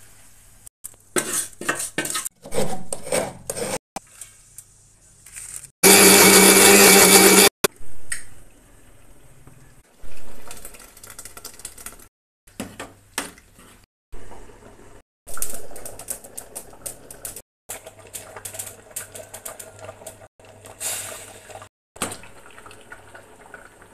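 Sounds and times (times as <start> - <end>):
ladle scraping metal pot: 1.1 - 4.2
pot boiling with bubbles popping: 14.2 - 23.9.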